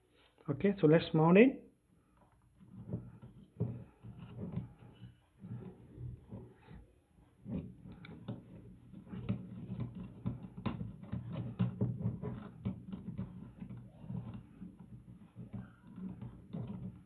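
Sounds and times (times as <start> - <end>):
plastic shock mount clicking and scraping: 7.4 - 17.0.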